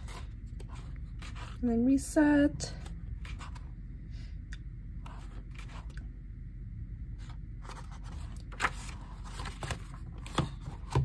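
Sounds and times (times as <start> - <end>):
low steady hum: 0.0 - 11.0
paper pages turning: 2.8 - 3.7, 7.2 - 10.7.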